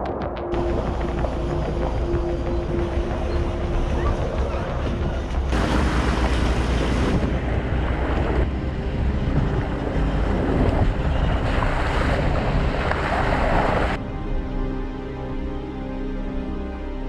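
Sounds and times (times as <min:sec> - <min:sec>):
moving vehicle low rumble: 0:00.0 - 0:15.6
wind buffeting microphone: 0:00.6 - 0:14.0.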